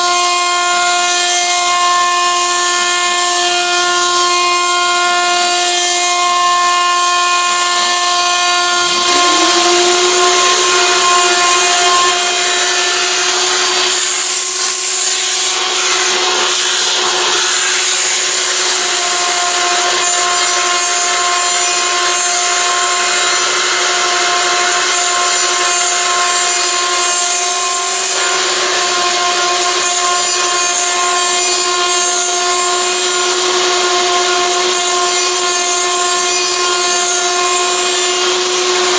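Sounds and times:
router spindle whining: 0:04.8 - 0:17.7
vacuum cleaner running: 0:05.0 - 0:21.8.

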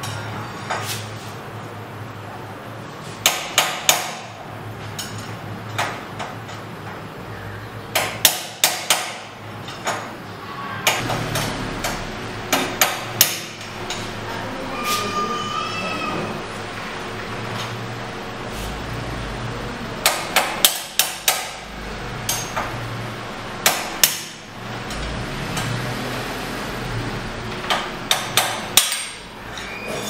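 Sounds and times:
hammer striking chisel: 0:03.2 - 0:04.3, 0:07.9 - 0:10.0, 0:10.9 - 0:13.6, 0:20.0 - 0:21.6, 0:23.6 - 0:24.4, 0:27.7 - 0:29.2.

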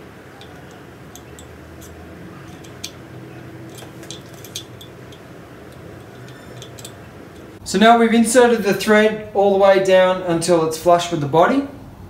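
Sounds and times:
low workshop hum: 0:00.0 - 0:12.0
metal tool ticking and clicking: 0:00.3 - 0:07.6.

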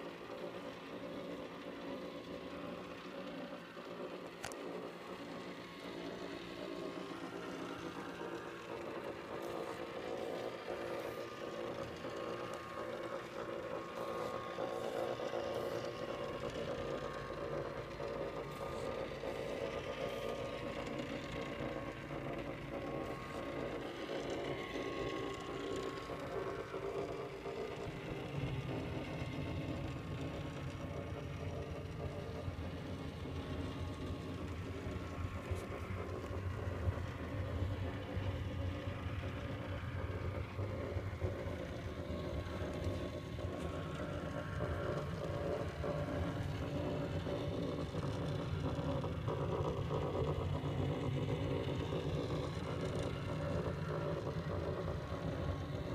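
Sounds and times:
mechanical whir of motors: 0:00.0 - 0:55.9.

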